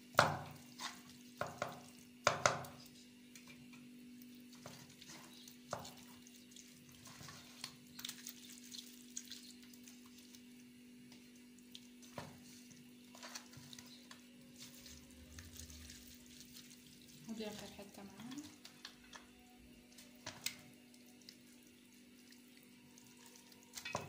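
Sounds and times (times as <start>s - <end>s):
knocks and clicks against pot: 1.4s - 2.8s
hands squishing chicken pieces: 4.5s - 10.5s.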